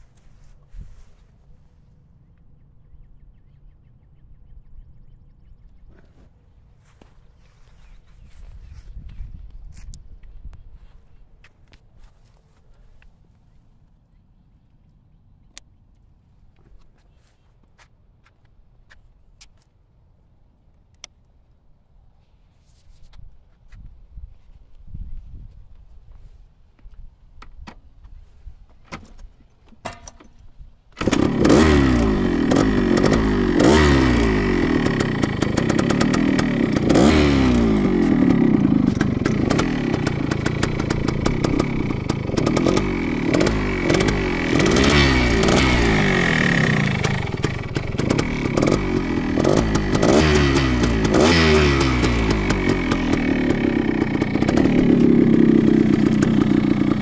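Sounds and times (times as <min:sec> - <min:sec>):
two-stroke engine revving: 0:31.0 - 0:57.0.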